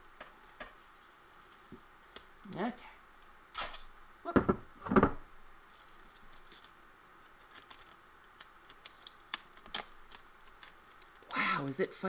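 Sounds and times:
masking tape ripping: 3.5s - 4.0s, 6.0s - 11.3s
paper and tape clicks: 6.0s - 11.3s.

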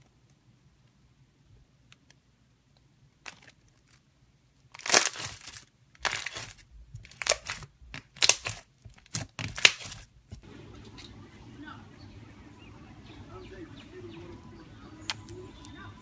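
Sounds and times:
slime crackling and popping: 4.7s - 10.4s.

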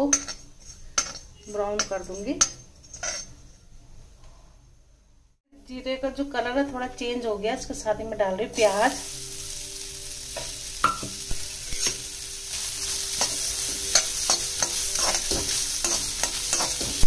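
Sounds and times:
metal spoon scraping and tapping pan: 0.0s - 3.5s, 10.3s - 17.0s
onion sizzling in a pan: 8.5s - 17.0s.

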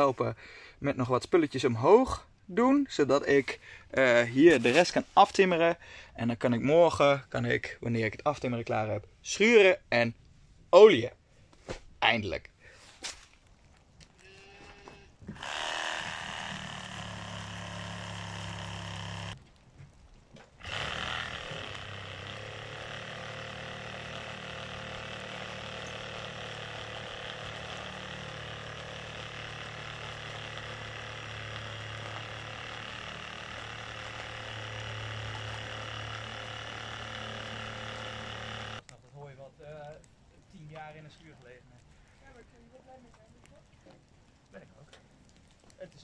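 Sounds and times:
low mechanical hum: 14.2s - 38.8s.

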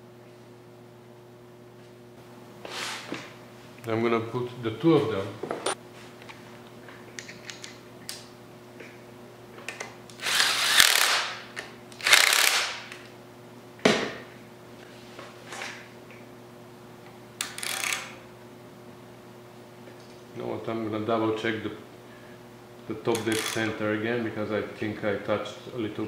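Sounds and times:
ratchet wrench clicking: 12.0s - 12.8s, 17.4s - 18.1s.

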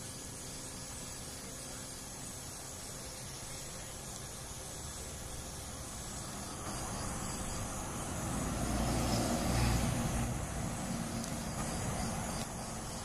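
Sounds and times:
steady hiss: 0.0s - 13.0s
vehicle driving past: 5.6s - 12.8s.

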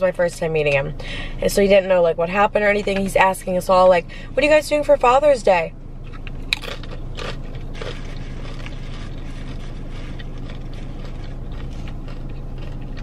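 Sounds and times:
parked car humming: 0.0s - 13.0s
chewing: 6.1s - 13.0s.

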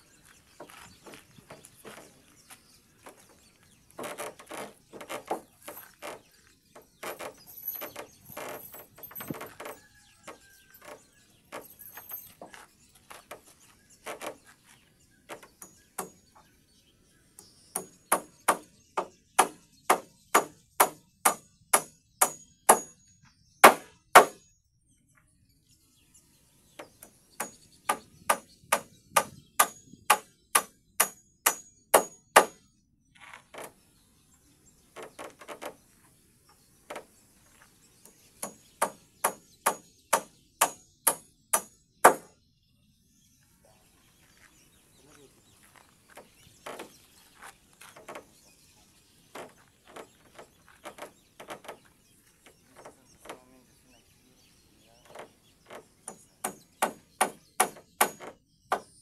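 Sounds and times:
hammer driving nails into wood: 17.8s - 22.9s, 23.6s - 24.4s, 27.0s - 32.6s, 38.4s - 42.3s, 56.0s - 58.9s.

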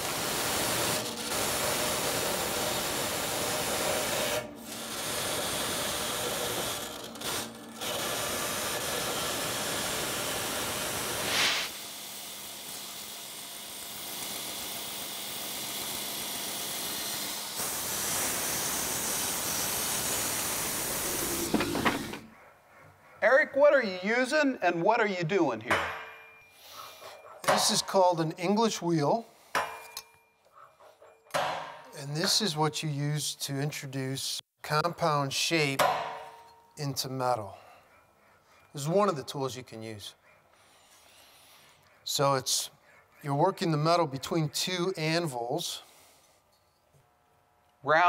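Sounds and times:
sander grinding metal edge: 0.0s - 13.2s
bandsaw cutting sheet metal: 0.0s - 22.3s.

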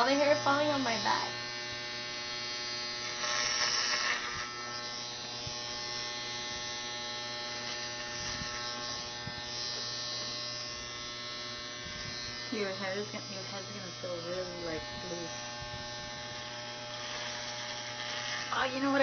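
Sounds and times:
electric hair clippers buzzing: 0.0s - 19.0s.

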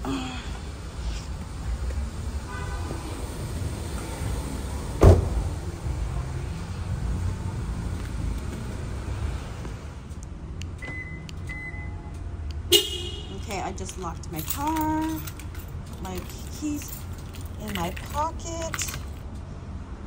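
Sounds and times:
car door slamming: 4.9s - 5.6s
faint high beeps: 10.8s - 12.1s.

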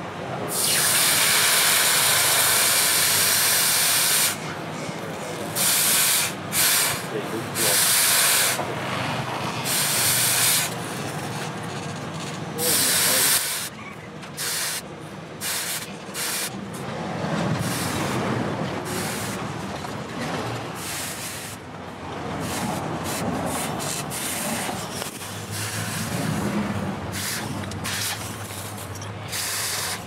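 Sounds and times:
hot steel hissing in water: 0.5s - 4.5s, 5.6s - 8.6s, 9.6s - 10.8s, 12.6s - 13.7s, 29.3s - 30.0s.

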